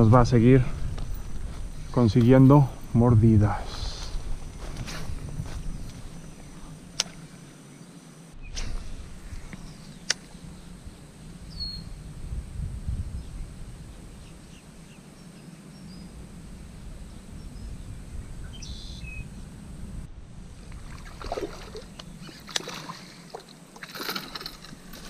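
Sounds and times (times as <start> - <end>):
wind rumble on microphone: 0.0 - 7.4, 8.4 - 25.0
fishing tackle clicks and rattles: 23.8 - 25.0.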